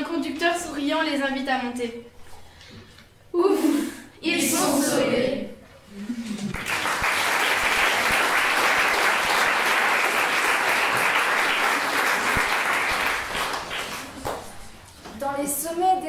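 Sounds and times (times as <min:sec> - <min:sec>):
audience applauding: 0:06.4 - 0:14.5.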